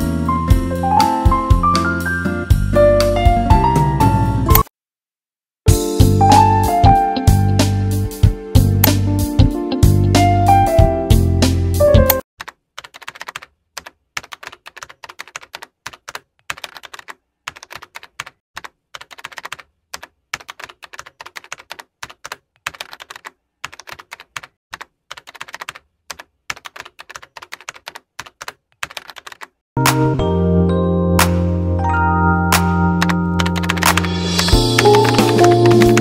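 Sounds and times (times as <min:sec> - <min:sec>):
keyboard typing: 0:12.1 - 0:29.6, 0:32.6 - 0:36.0.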